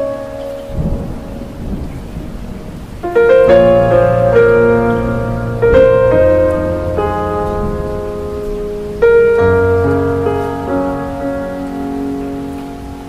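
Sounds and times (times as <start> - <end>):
background piano music: 0.0 - 13.0
steady hiss: 0.0 - 13.0.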